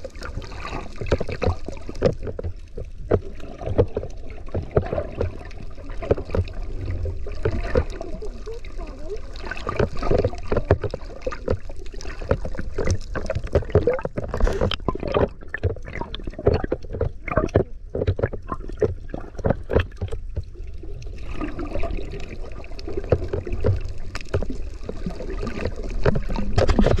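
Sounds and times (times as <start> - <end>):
water splashing and gurgling: 0.0 - 27.0.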